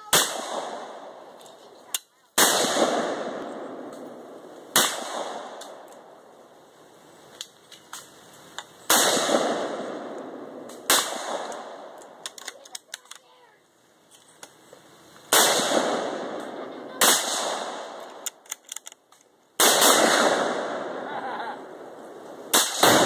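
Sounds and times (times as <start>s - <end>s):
gunshots with echo: 2.4s - 5.8s, 8.9s - 11.9s, 15.3s - 18.0s, 19.6s - 21.0s, 22.5s - 23.0s.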